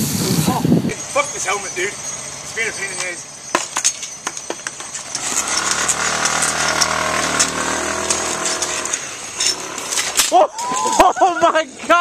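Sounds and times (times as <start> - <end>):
motor scooter engine revving: 5.0 - 10.3.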